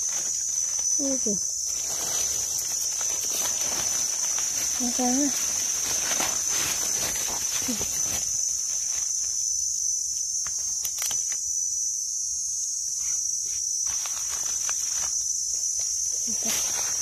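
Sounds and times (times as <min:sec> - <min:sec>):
dry leaves rustling: 0:00.0 - 0:09.6, 0:13.8 - 0:17.0
high-pitched insect chorus: 0:00.0 - 0:17.0.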